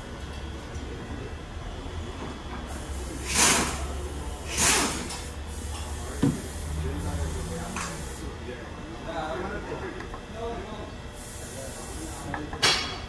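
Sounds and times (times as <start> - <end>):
air blow gun hissing: 2.7 - 8.3.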